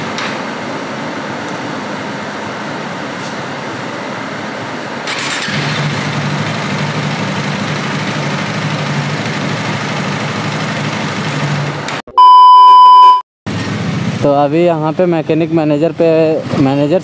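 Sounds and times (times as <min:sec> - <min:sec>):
motorcycle engine starting and idling: 0:05.0 - 0:12.0, 0:13.5 - 0:14.4.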